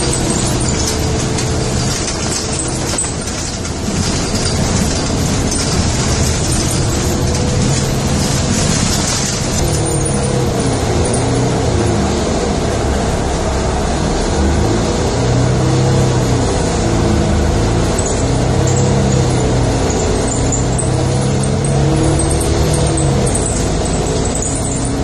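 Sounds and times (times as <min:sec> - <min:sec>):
engine hum: 0:00.0 - 0:25.0
vehicle interior rumble: 0:00.0 - 0:25.0.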